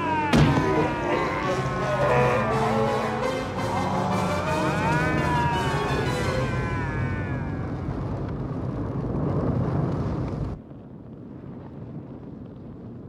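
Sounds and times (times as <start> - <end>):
music: 0.0 - 6.7
long wavering yell: 0.0 - 7.8
fire roaring: 0.0 - 13.0.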